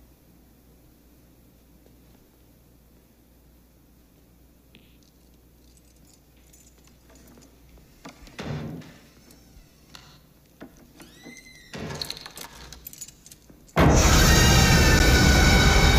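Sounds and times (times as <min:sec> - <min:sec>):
door sound: 0:07.8 - 0:15.2
short rising and falling squeak: 0:08.8 - 0:10.2, 0:11.0 - 0:12.4.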